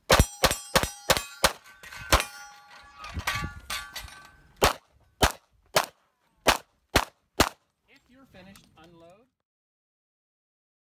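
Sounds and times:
steel targets clanging: 0.1s - 4.6s
handgun shots: 4.6s - 7.6s.

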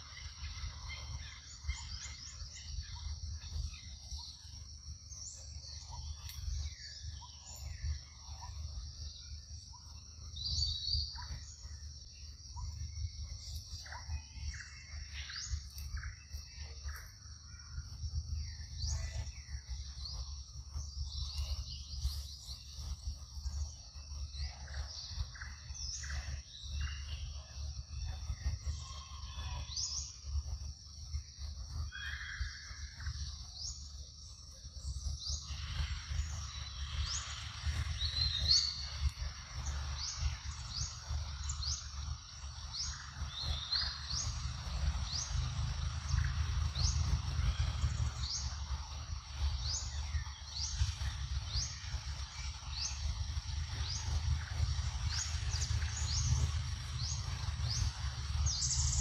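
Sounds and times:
high insect drone: 0.0s - 59.0s
low rumble: 0.0s - 59.0s.

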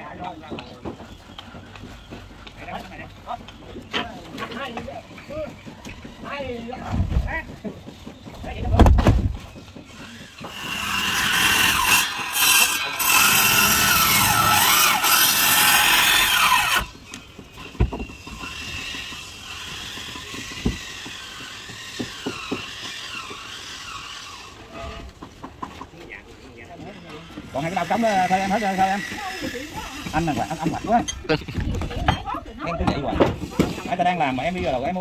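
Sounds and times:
power tool whining while cutting: 9.9s - 17.0s, 18.1s - 24.9s.

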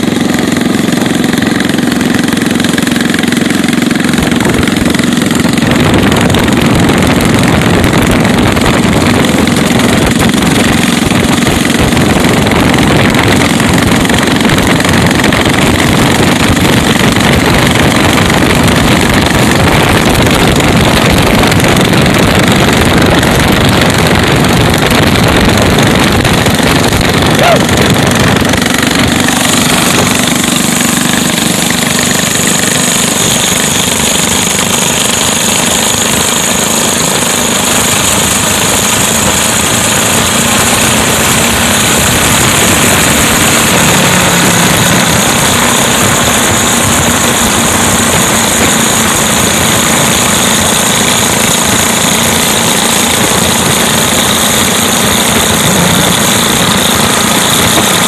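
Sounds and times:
mini bike engine running: 0.0s - 58.0s.

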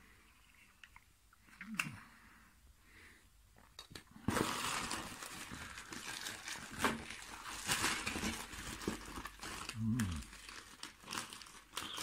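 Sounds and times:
plastic bag rustling and crinkling: 4.2s - 12.0s.

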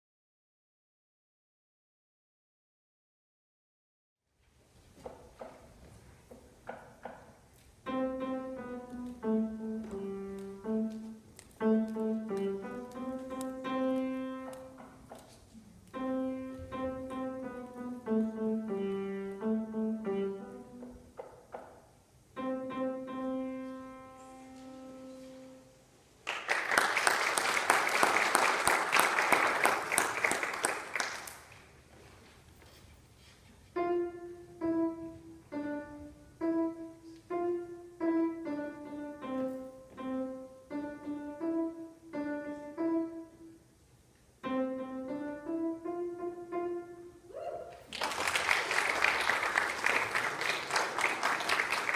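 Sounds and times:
grand piano played solo: 7.8s - 14.9s, 15.9s - 21.2s, 22.3s - 25.7s, 33.7s - 43.6s, 44.4s - 47.3s.

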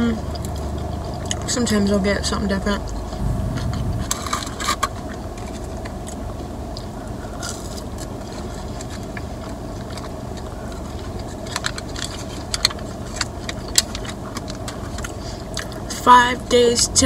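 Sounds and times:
low car hum: 0.0s - 6.8s
person chewing food: 0.3s - 1.4s.

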